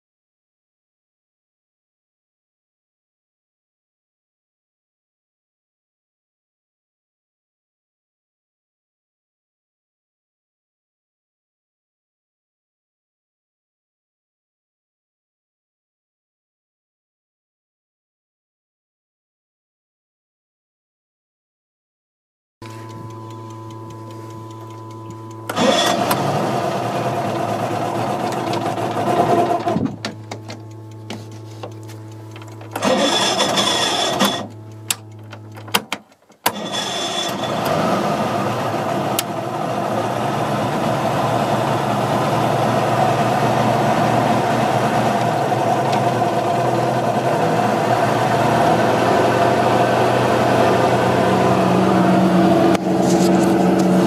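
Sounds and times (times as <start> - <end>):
boat engine starting: 22.6 - 54.0
electric hum: 22.6 - 54.0.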